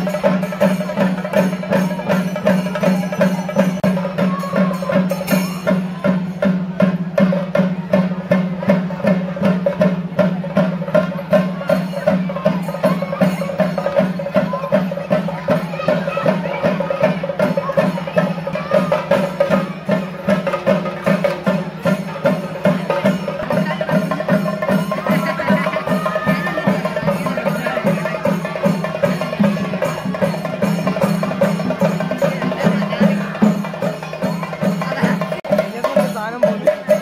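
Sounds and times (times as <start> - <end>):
drum ensemble playing: 0.0 - 37.0.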